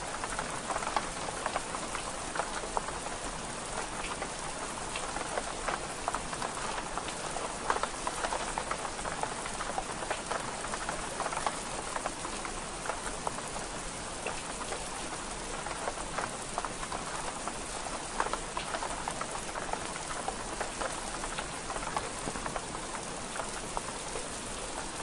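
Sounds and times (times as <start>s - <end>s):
rain on window glass: 0.0s - 25.0s.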